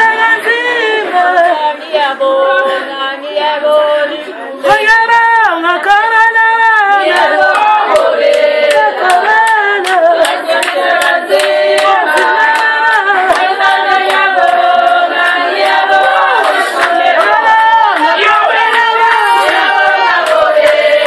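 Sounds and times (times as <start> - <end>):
group of voices singing: 0.0 - 21.0
rhythmic hand clapping: 5.8 - 21.0.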